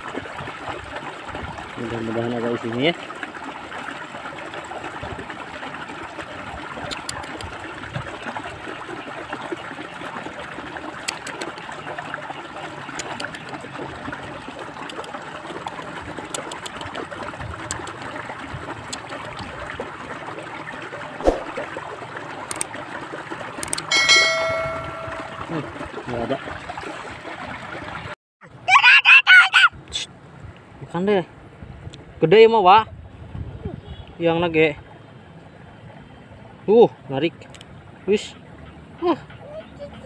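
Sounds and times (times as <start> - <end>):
water trickling: 0.0 - 28.1.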